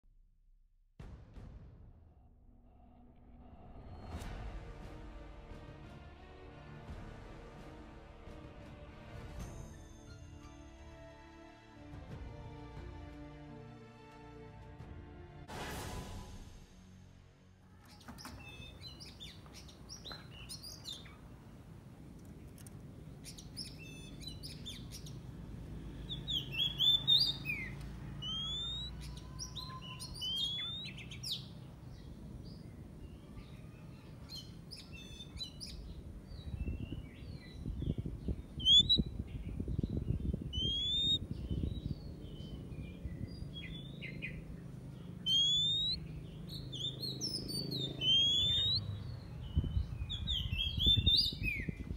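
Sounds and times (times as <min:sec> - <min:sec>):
low rumble: 0:00.0 - 0:06.5
bird singing whistles: 0:26.1 - 0:31.5, 0:38.6 - 0:39.1, 0:40.5 - 0:42.0, 0:45.2 - 0:51.8.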